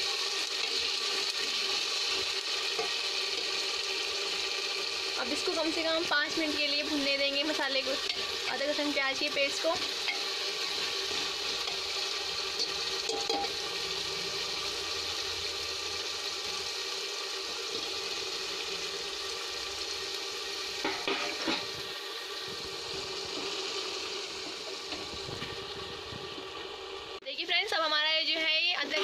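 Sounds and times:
onions sizzling in hot oil: 0.0s - 29.0s
spoon clinking against pot: 12.6s - 13.6s.

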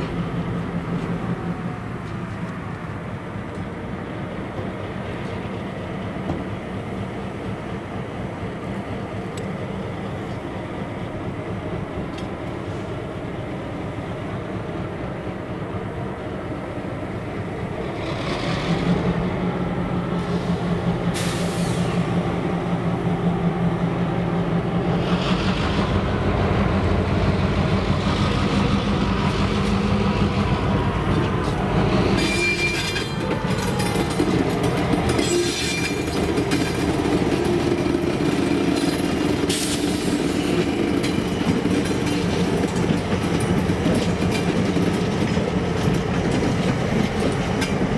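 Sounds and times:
diesel locomotive engines droning: 0.0s - 47.9s
train wheels on rails: 0.0s - 47.9s
thin flange squeal: 32.2s - 33.2s, 35.2s - 36.1s.

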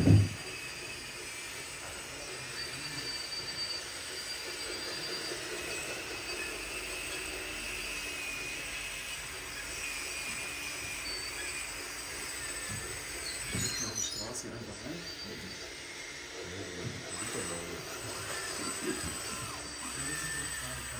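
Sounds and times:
electric motors whining: 0.0s - 20.9s.

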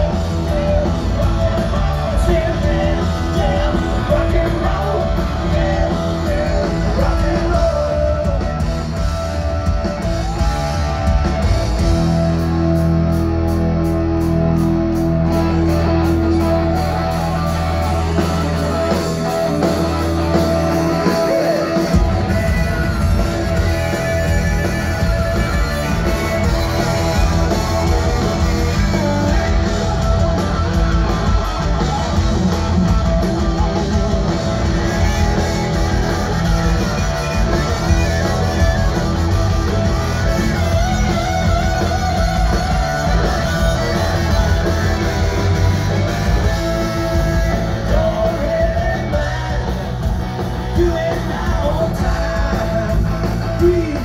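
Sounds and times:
distorted electric guitars: 0.0s - 54.0s
drums: 0.0s - 54.0s
harmonica: 16.9s - 30.0s, 33.7s - 47.8s.

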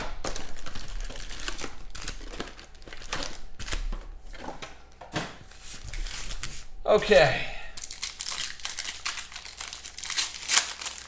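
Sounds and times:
foil card packs crinkling: 0.0s - 5.0s, 7.8s - 11.0s.

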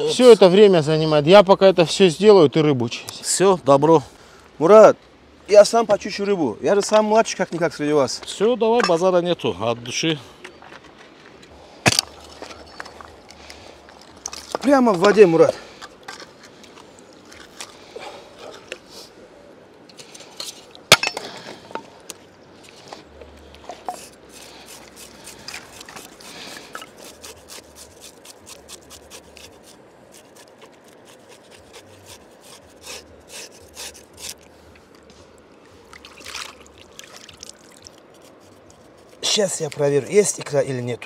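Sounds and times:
knife scraping fish scales: 23.9s - 34.5s, 37.7s - 39.8s.

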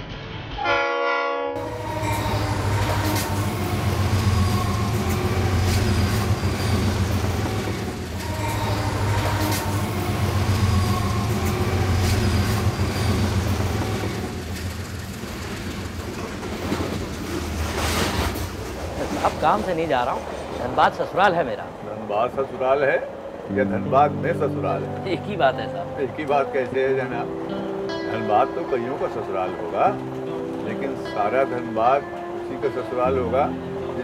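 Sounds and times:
train rumble: 0.0s - 34.0s
wheels clicking over rail joints: 9.4s - 23.5s.

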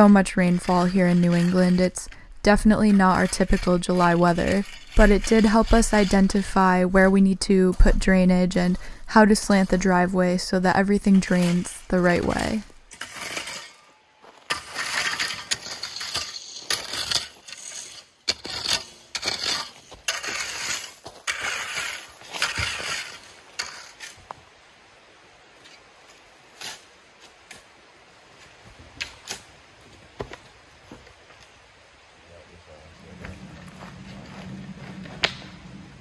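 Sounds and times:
metal rake dragging through gravel: 0.0s - 24.4s.

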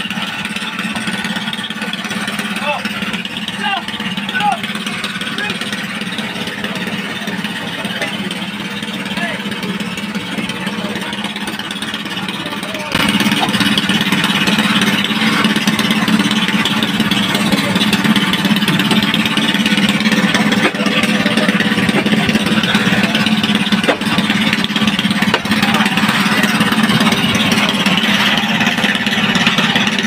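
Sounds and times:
boat engine humming: 0.0s - 30.0s.

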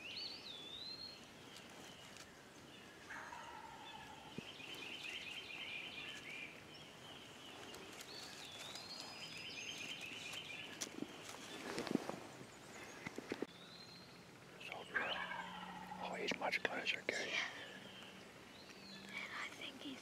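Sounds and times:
songbirds whistling: 2.8s - 20.0s
distant turkey gobbling: 3.1s - 4.3s, 14.9s - 16.6s.

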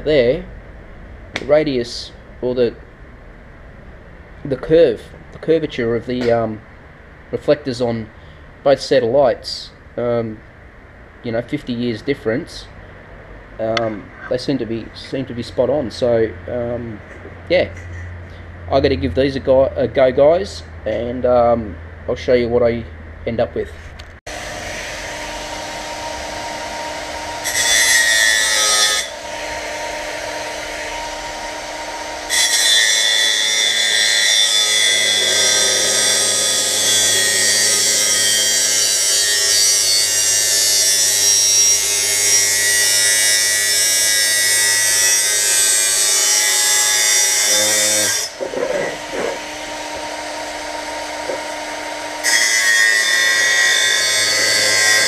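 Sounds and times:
angle grinder motor whining: 24.3s - 39.8s, 45.6s - 53.7s
grinder disc cutting metal: 24.3s - 55.0s.

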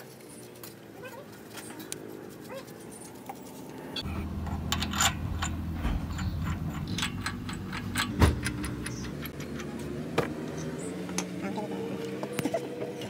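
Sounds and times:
steady low hum: 3.7s - 11.0s.

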